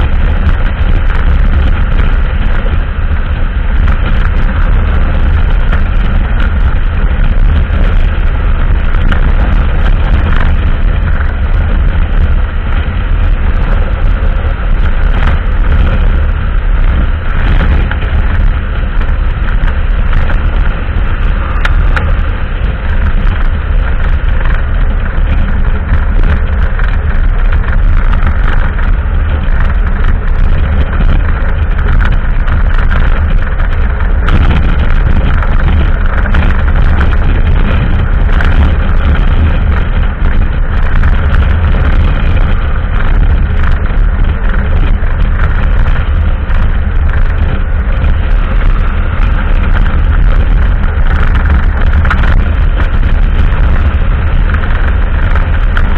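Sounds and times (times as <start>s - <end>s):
motorcycle engine running: 0.0s - 55.9s
road noise: 0.0s - 55.9s
wind rumble on microphone: 0.0s - 55.9s.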